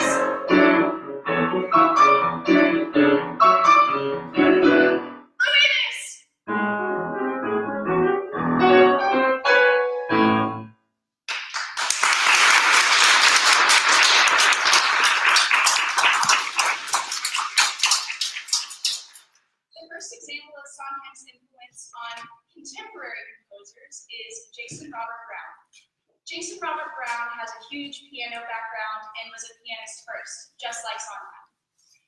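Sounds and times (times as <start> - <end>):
piano accompaniment: 0.0 - 5.3, 6.5 - 10.8
audience applauding: 11.3 - 19.2.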